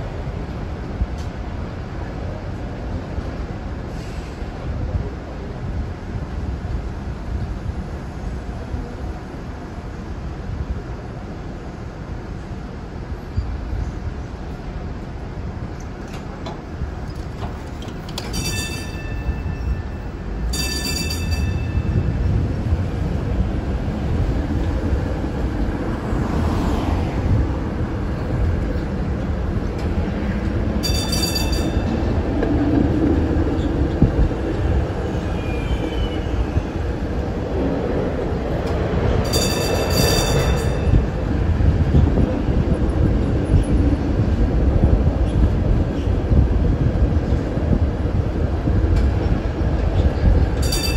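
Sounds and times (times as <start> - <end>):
streetcar rolling on rails: 0.0 - 50.9
high-pitched ringing tones: 18.3 - 22.1, 30.8 - 31.9, 39.3 - 41.0.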